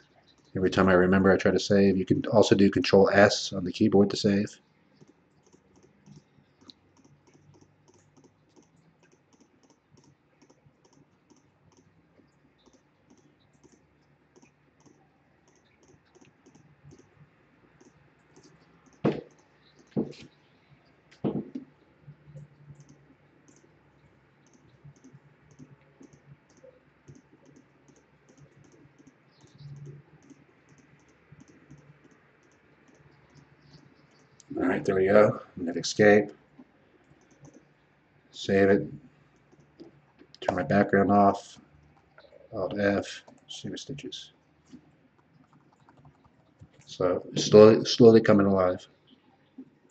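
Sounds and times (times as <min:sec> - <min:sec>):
computer mouse clicking: 0:05.0 - 0:17.2, 0:17.8 - 0:20.4, 0:22.3 - 0:34.5, 0:37.0 - 0:37.7, 0:39.3 - 0:40.6, 0:44.7 - 0:46.9.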